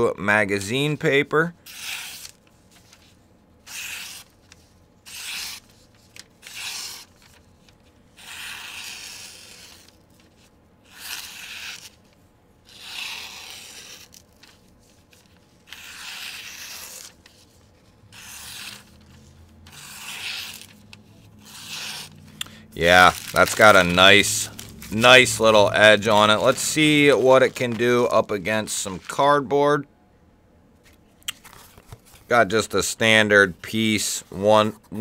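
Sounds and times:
knife slicing paper: 0:01.7 - 0:03.0, 0:03.7 - 0:04.4, 0:05.1 - 0:07.5, 0:08.1 - 0:12.1, 0:12.7 - 0:22.1, 0:22.8 - 0:28.3.

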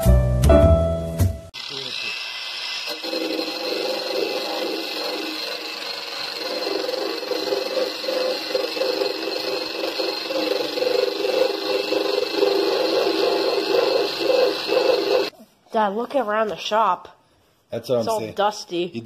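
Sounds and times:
grinder grinding sheet metal: 0:01.6 - 0:15.3.

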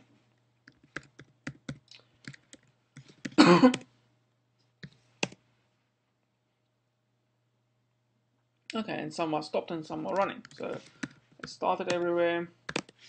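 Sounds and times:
keyboard keys clicking: 0:00.7 - 0:03.8, 0:12.7 - 0:13.0
person coughing: 0:03.3 - 0:03.9.

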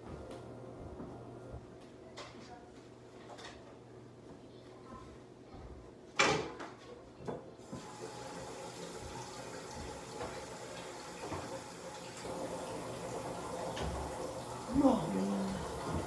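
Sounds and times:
tap water running into sink: 0:07.6 - 0:16.0.

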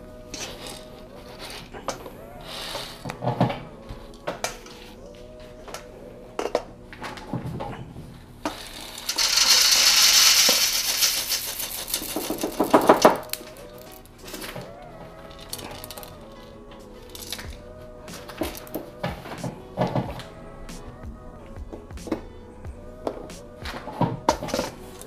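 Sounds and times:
beans clattering: 0:08.5 - 0:14.6
coffee beans pouring onto metal mesh: 0:09.0 - 0:13.4.

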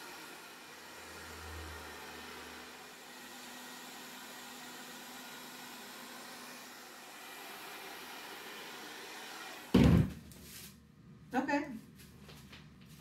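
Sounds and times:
hair dryer blowing: 0:00.0 - 0:10.6
loud thump: 0:09.7 - 0:10.3.

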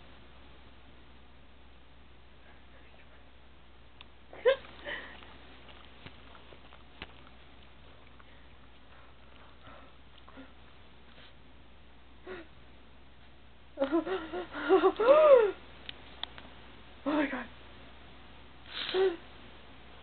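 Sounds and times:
dog sniffing: 0:04.8 - 0:11.4
dog chewing and licking: 0:05.1 - 0:10.4.

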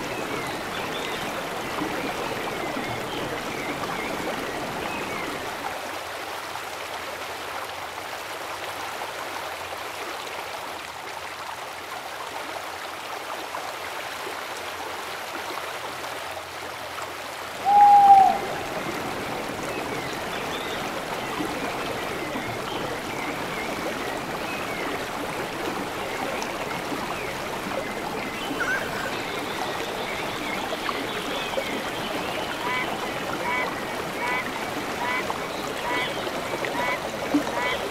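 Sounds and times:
river water rushing over stones: 0:00.0 - 0:37.9
short loud call: 0:17.6 - 0:18.6.

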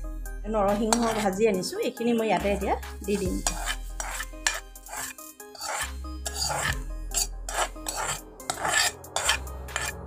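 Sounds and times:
metal spoon scraping a wok: 0:00.8 - 0:01.4, 0:03.3 - 0:10.0.

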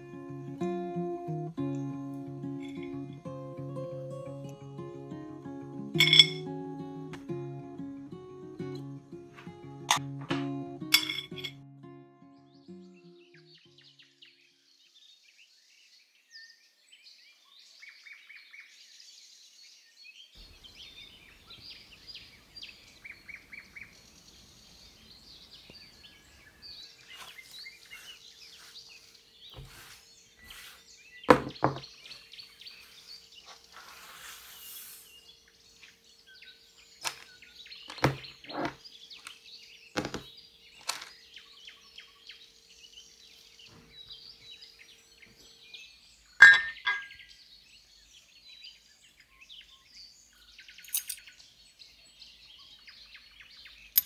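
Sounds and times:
small birds chirping: 0:12.2 - 0:54.0
knocks on a hard surface: 0:31.3 - 0:31.9.

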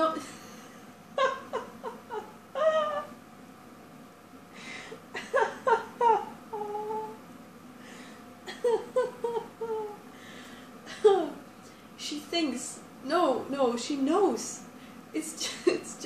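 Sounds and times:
woman giggling: 0:00.0 - 0:03.1, 0:05.1 - 0:07.2, 0:08.5 - 0:10.0, 0:10.9 - 0:11.4.

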